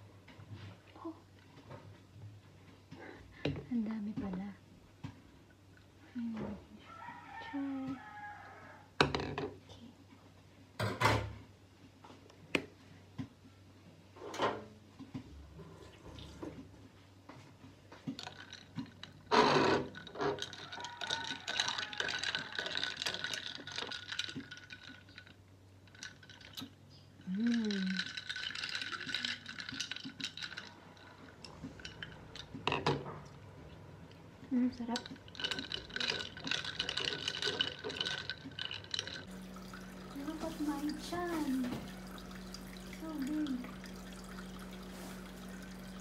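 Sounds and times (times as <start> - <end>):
spoon stirring in a glass: 18.2 - 19.2, 19.9 - 32.5, 34.9 - 46.0.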